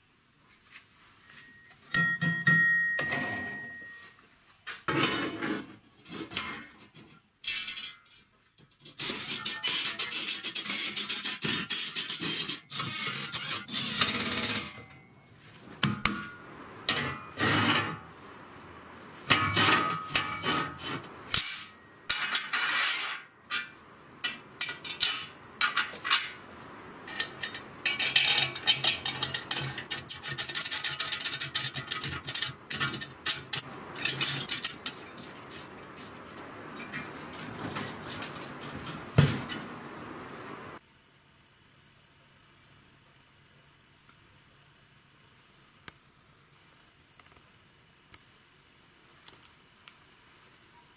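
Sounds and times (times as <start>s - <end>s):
metal parts clinking and scraping: 7.4s - 9.5s, 19.3s - 26.4s, 27.0s - 35.6s.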